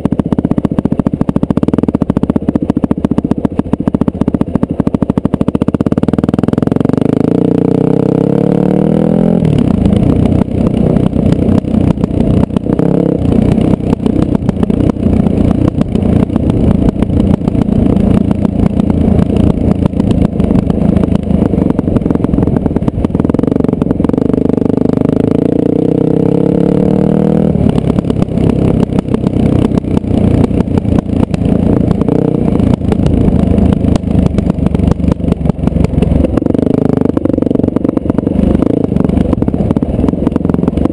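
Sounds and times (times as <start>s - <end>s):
dirt bike engine revving: 5.0s - 40.9s.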